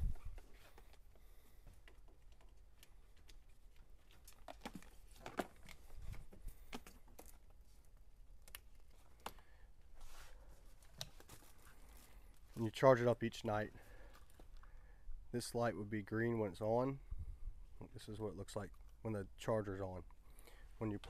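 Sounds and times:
light rustling of cord: 0.0s - 12.8s, 13.7s - 14.8s.

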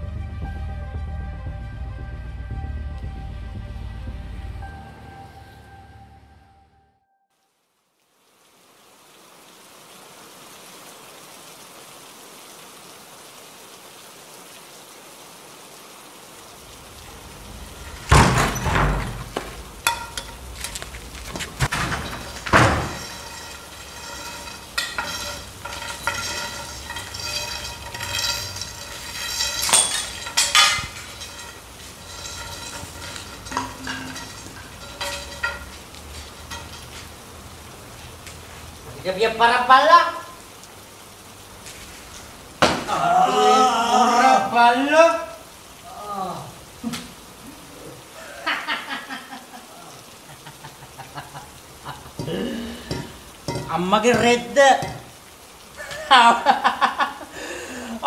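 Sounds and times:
steady hiss: 7.7s - 43.3s, 44.4s - 58.0s
heavy hits: 16.7s - 37.3s.

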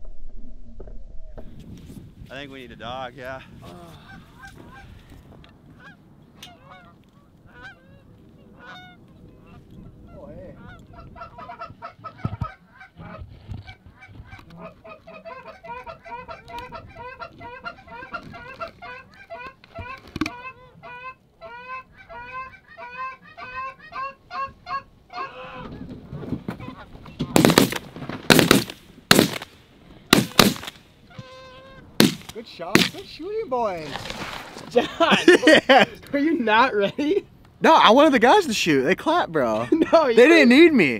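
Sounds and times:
geese honking: 5.7s - 25.9s, 26.5s - 27.4s, 30.3s - 32.0s
shotgun blasts: 27.3s - 30.8s, 32.0s - 33.1s.

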